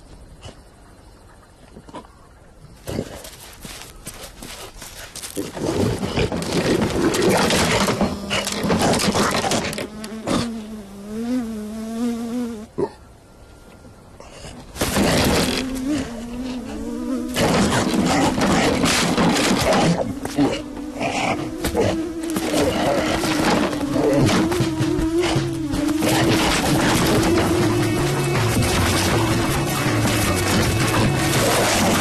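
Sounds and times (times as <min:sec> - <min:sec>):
swarm of insects buzzing: 0:06.3 - 0:12.8, 0:14.8 - 0:32.0.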